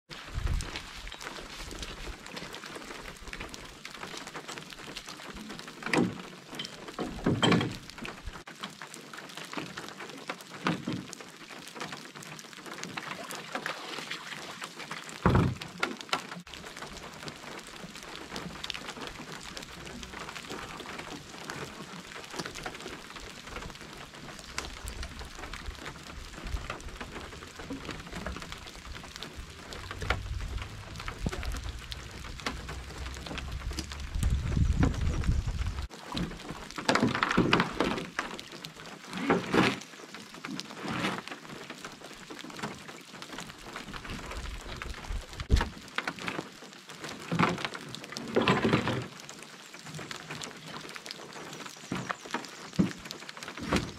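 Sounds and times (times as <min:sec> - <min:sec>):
rain falling on a lake: 0:00.1 - 0:53.9
gear thumping into a canoe: 0:15.2 - 0:16.0, 0:52.0 - 0:53.9.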